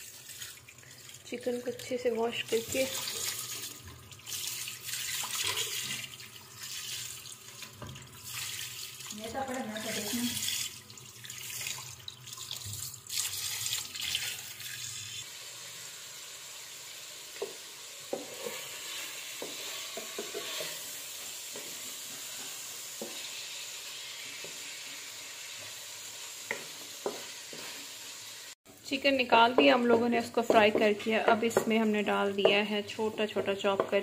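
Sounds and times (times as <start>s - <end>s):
chicken sizzling in oil: 12.9s - 28.6s
wooden spatula scraping pan: 18.1s - 23.4s.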